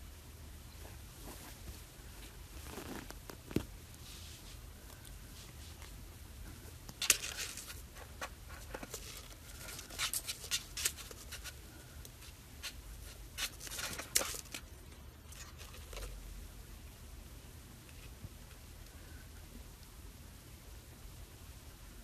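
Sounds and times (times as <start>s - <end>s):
low steady hum: 0.0s - 22.0s
kitten scratching and rustling: 0.9s - 6.0s, 6.6s - 16.2s.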